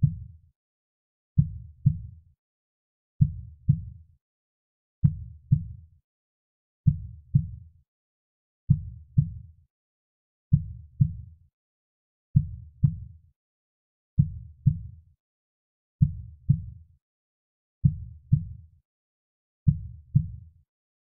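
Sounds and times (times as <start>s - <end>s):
slow heartbeat: 12.4s - 13.1s.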